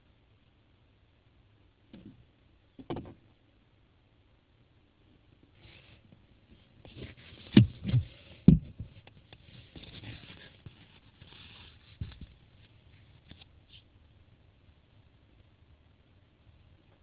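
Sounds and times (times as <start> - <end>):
faint rustling: 5.4 - 14.0
dull thumps: 6.9 - 9.1.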